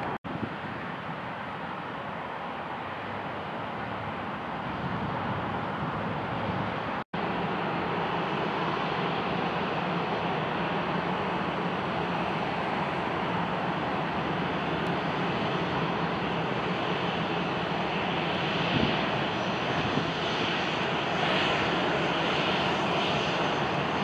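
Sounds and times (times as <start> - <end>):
jet engines roaring: 0.0 - 24.0.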